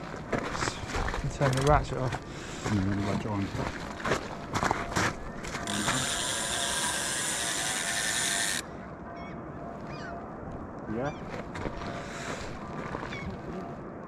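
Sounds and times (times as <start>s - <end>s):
fishing reel drag buzzing: 5.6s - 8.7s.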